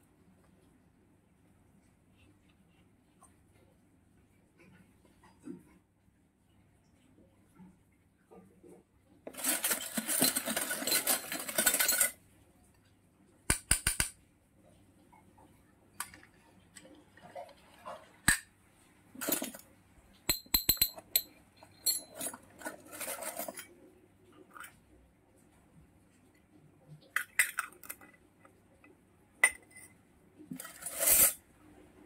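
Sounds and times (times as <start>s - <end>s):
metal toy pieces clinking: 9.3s - 12.2s, 20.3s - 23.7s, 30.6s - 31.4s
rustling: 9.3s - 12.2s, 22.0s - 23.9s.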